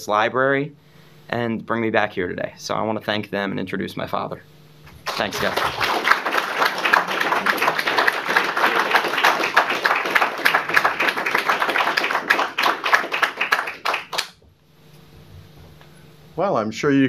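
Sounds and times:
audience applauding: 5.0 - 14.4.

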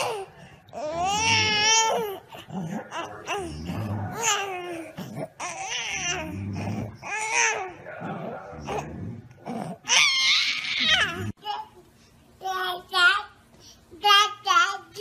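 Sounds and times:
infant babbling and squealing: 0.0 - 7.8, 9.8 - 11.4.

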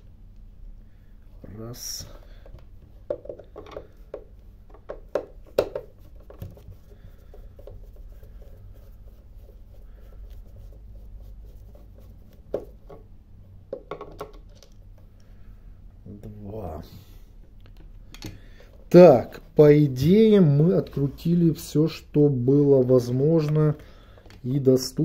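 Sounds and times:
plastic housing being handled: 2.4 - 8.1, 13.7 - 14.8.

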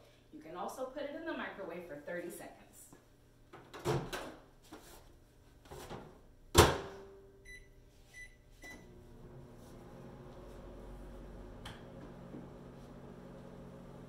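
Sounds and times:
microwave oven humming: 8.7 - 14.0.

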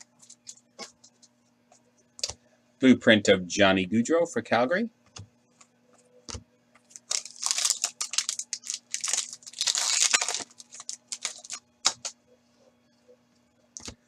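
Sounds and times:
foil wrapper tearing and crinkling: 6.9 - 12.1.

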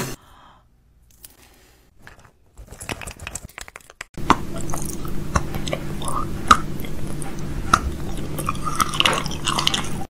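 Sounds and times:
crinkling and crackling clicks: 2.1 - 4.2
wet mouth clicks: 3.2 - 10.0
low hum: 4.2 - 10.0.

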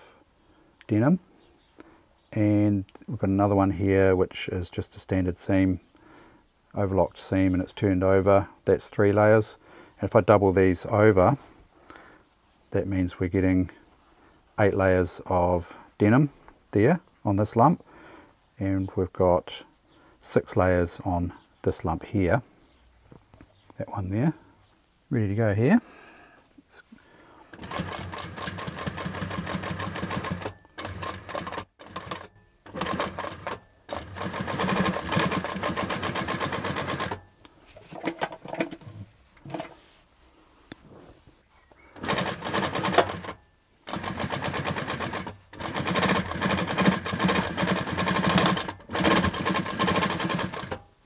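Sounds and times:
sewing machine stitching: 27.5 - 37.2, 42.0 - 50.8.

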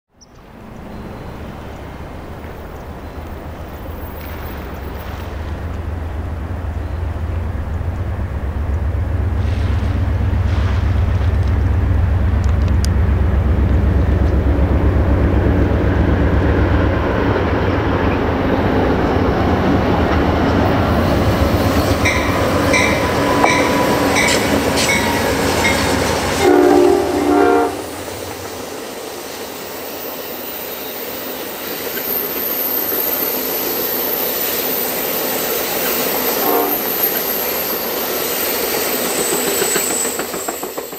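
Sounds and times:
diesel locomotive engine rumble: 0.2 - 40.9
train wheels clicking on rail joints: 0.4 - 40.9
high wheel squeal: 20.3 - 28.0, 28.8 - 40.9
train horn blast: 22.0 - 28.1, 36.3 - 37.1.

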